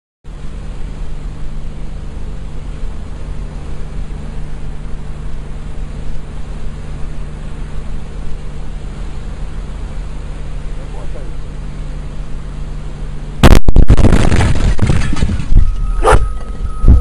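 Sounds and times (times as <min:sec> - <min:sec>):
vehicle engine idling: 0:00.3 - 0:13.5.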